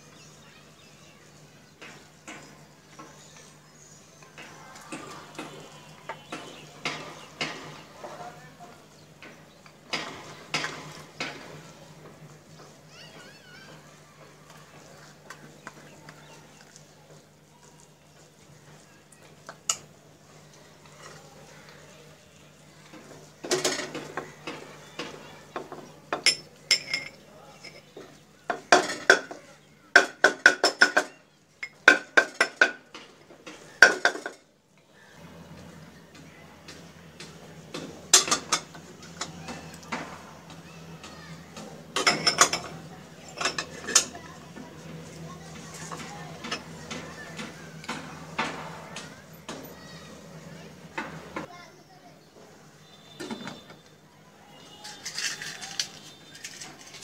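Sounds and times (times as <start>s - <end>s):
ceramic cups clinking: 25.6s - 29.4s, 30.0s - 32.8s, 33.8s - 34.4s, 38.1s - 38.8s, 42.0s - 44.3s.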